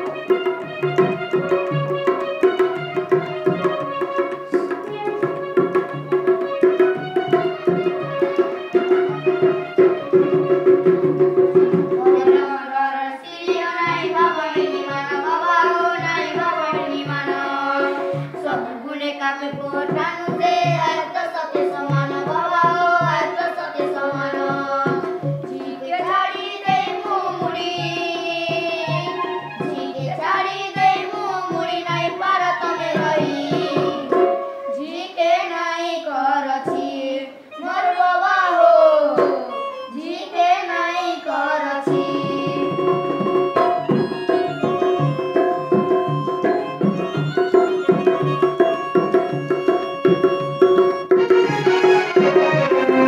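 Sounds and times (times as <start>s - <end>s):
hand drum beat: 0.0s - 12.6s, 13.3s - 18.7s, 19.4s - 35.0s, 41.9s - 53.0s
children singing: 0.0s - 53.0s.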